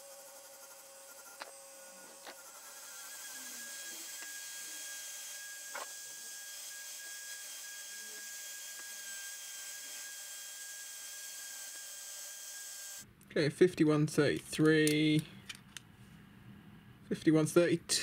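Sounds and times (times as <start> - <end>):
cordless drill motor whining: 0.0 - 13.0.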